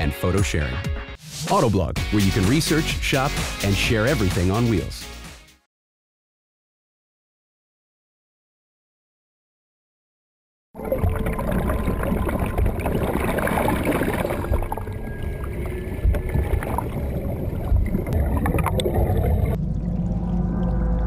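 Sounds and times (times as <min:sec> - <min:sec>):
muffled underwater water churning: 0:10.8 - 0:21.0.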